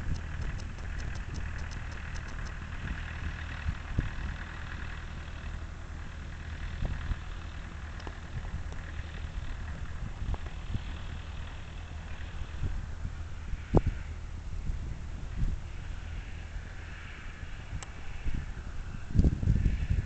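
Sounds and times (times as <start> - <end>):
fast light ticking: 0.0 - 2.6
distant truck engine running: 0.0 - 20.0.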